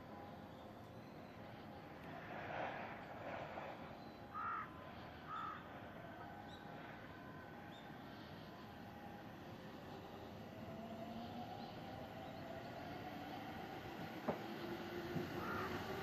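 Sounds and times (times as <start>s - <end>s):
faint steady hum: 0.0s - 16.0s
crow cawing: 4.3s - 5.6s, 15.4s - 15.8s.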